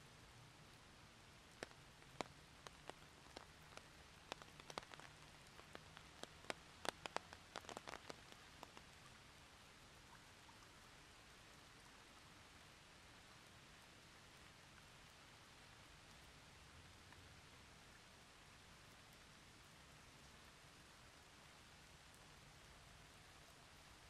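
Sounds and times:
rain hiss: 0.0 - 24.0
raindrops tapping: 1.2 - 9.4.

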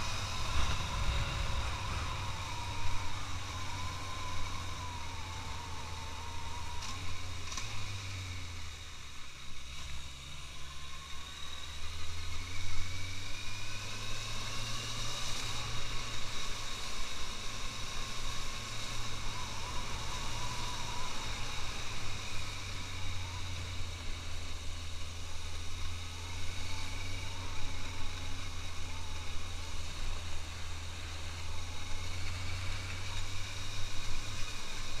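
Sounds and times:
wind noise on microphone: 0.0 - 5.9
motorcycle engine accelerating: 0.0 - 35.0.

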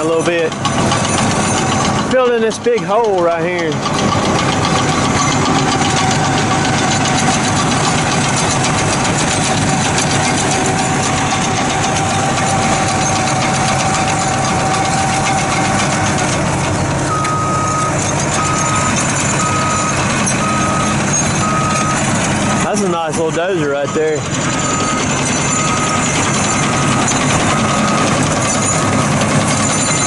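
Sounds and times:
excavator diesel engine running: 0.0 - 30.0
backup alarm beeping: 17.1 - 22.8, 23.9 - 29.2.

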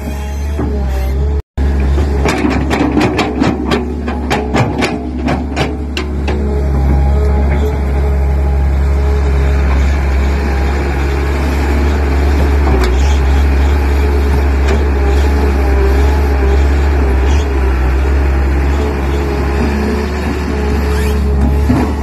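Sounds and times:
excavator diesel engine running: 0.1 - 22.0.

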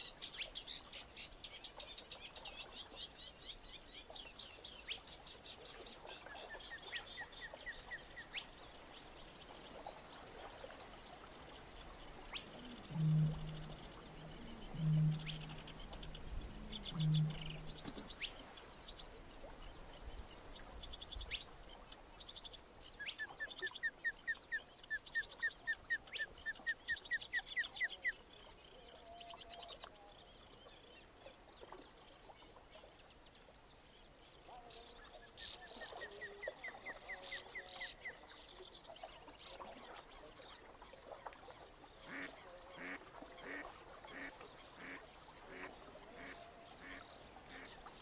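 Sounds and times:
quick rising bird notes: 12.6 - 18.2.

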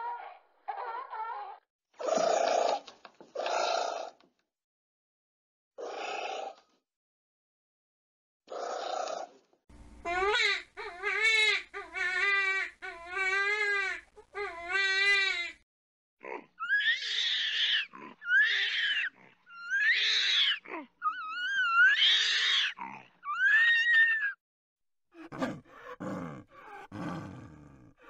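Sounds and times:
orangutan wailing calls: 16.6 - 24.4.

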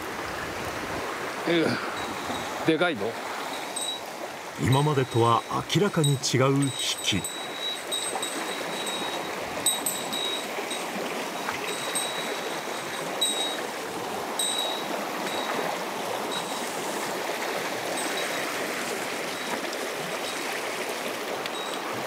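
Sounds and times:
stream water rushing: 0.0 - 22.0
short high pings: 3.6 - 13.7.

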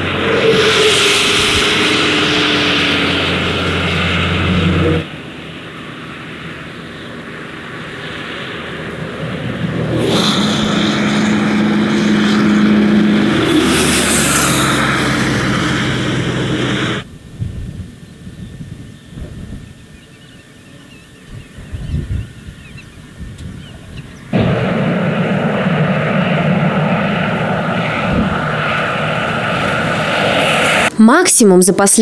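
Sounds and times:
rushing hiss: 0.0 - 5.0, 9.9 - 17.1
motor engine running: 0.0 - 5.2, 9.1 - 17.1.

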